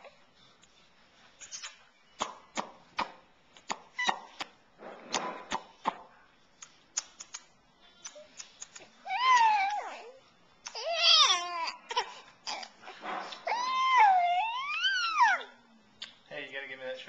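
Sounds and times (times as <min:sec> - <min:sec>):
baby sucking and smacking fist: 0:01.4 - 0:06.0, 0:06.6 - 0:09.0.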